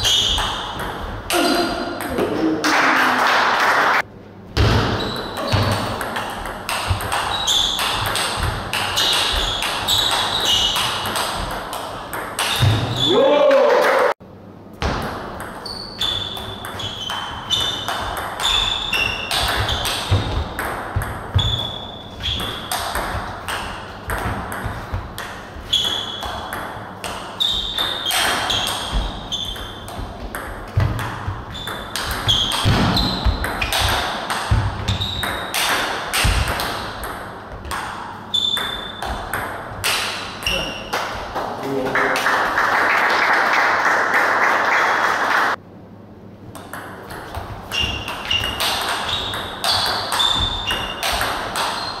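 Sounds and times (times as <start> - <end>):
shoes squeaking: 0.0 - 1.9, 4.8 - 13.2, 15.6 - 36.6, 38.2 - 41.2, 47.3 - 52.0.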